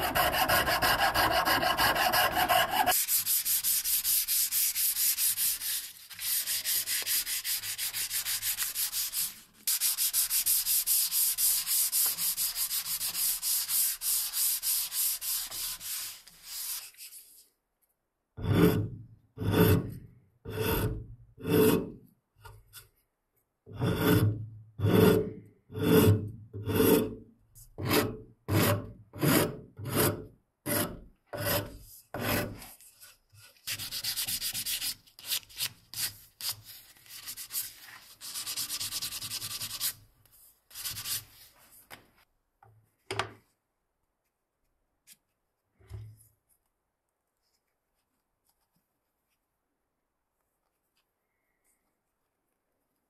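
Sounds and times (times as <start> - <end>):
rasp scraping wood: 0.0 - 3.0, 27.8 - 32.6
sanding wood: 0.0 - 16.8.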